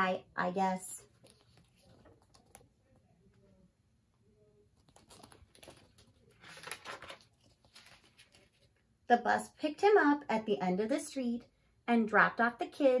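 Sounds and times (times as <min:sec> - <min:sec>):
paper pages rustling: 0:01.0 - 0:03.0, 0:04.7 - 0:08.8.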